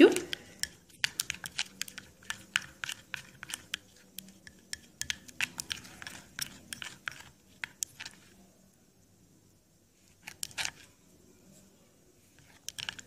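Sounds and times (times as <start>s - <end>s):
spoon scraping ceramic bowl: 0.1s - 8.4s, 10.1s - 10.9s, 12.3s - 13.0s.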